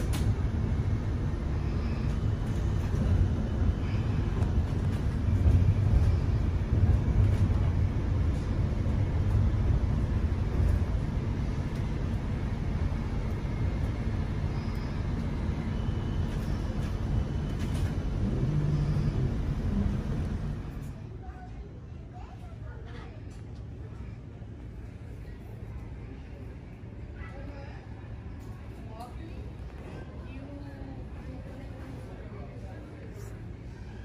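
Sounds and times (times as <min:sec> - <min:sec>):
low hum: 0:00.0 - 0:21.2
tram wheels rumbling on rails: 0:00.0 - 0:27.2.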